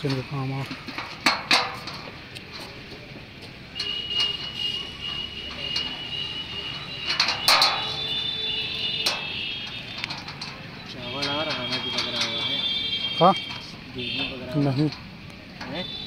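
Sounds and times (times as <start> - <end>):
metal bracket clinking: 0.0 - 2.9, 3.5 - 16.0.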